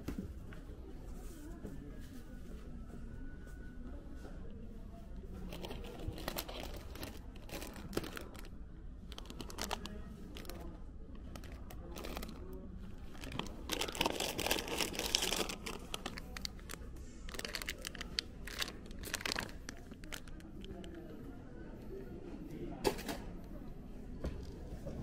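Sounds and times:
plastic bag crinkling: 5.5 - 8.5, 9.1 - 10.7, 11.3 - 20.9.

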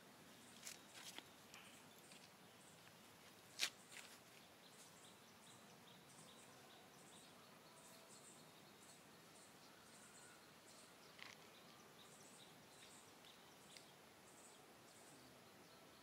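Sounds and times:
faint high chirps: 4.7 - 16.0.

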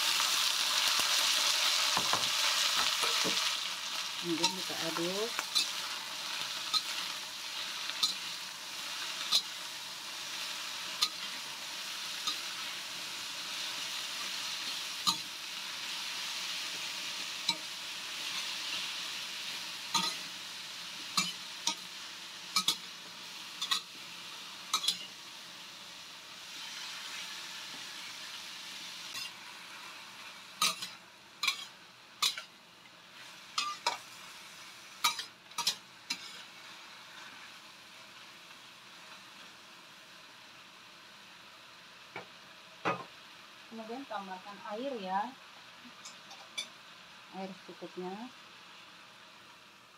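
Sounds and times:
vegetables sizzling in oil: 0.0 - 49.9
metal spatula scraping wok: 4.2 - 9.6, 17.4 - 20.4, 21.0 - 21.9, 23.5 - 24.0, 24.7 - 25.2, 29.1 - 29.4, 30.6 - 32.5, 33.2 - 34.2, 35.0 - 36.6.

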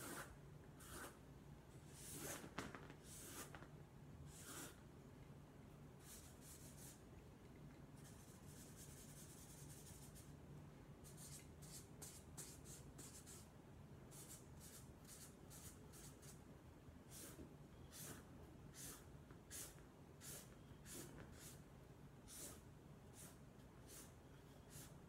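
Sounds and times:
felt-tip marker strokes on paper: 4.3 - 4.8, 6.0 - 7.0, 8.0 - 10.3, 14.1 - 16.4, 17.1 - 21.6, 22.2 - 25.0.

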